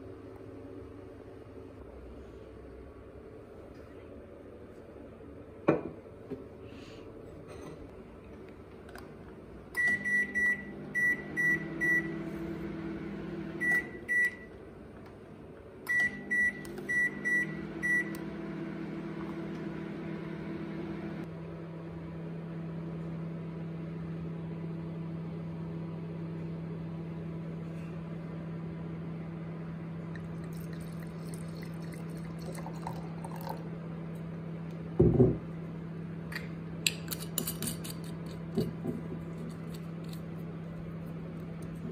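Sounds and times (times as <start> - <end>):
microwave humming: 7.4 - 37.0
microwave beeps: 9.8 - 12.2, 13.6 - 14.5, 15.9 - 18.6.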